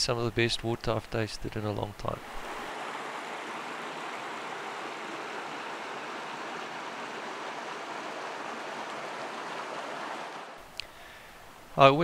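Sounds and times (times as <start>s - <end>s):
stream rushing over rocks: 2.2s - 10.6s.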